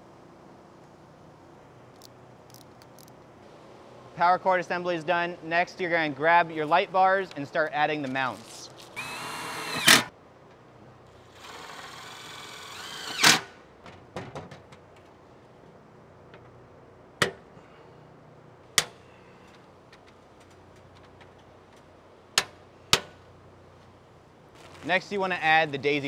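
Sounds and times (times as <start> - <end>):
cordless driver whirring: 9.0 - 10.1.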